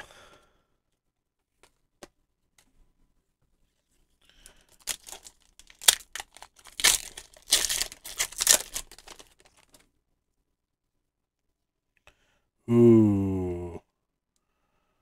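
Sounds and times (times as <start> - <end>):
foil wrapper tearing and crinkling: 4.4 - 9.8.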